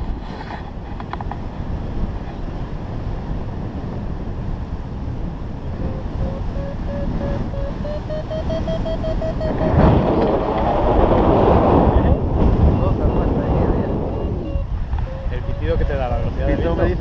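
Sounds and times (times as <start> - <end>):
wind rushing over microphone: 0.0 - 17.0
variometer beeping: 5.8 - 10.4, 11.9 - 16.6.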